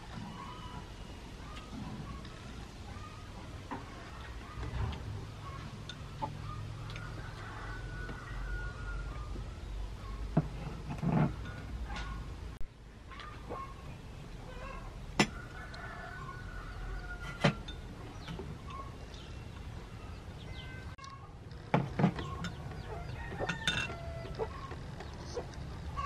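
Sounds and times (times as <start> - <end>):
chickens clucking: 0.0 - 10.4, 13.1 - 19.9, 20.6 - 26.0.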